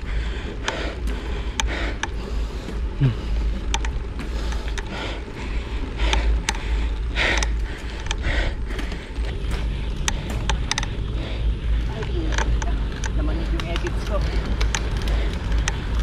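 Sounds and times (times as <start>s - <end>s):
low rumble: 0.0s - 16.0s.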